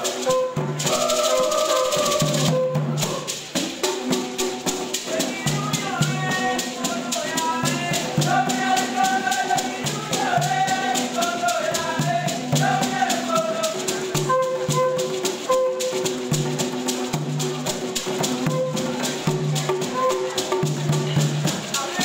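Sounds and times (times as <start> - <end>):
shakers rattling: 0.0 - 22.0.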